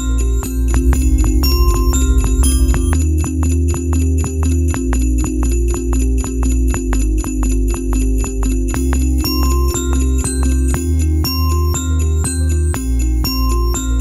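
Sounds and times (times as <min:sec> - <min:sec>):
jingling bell-like percussion: 0:00.0 - 0:14.0
sustained bass line: 0:00.2 - 0:09.2, 0:13.8 - 0:14.0
music with quick beat: 0:00.6 - 0:14.0.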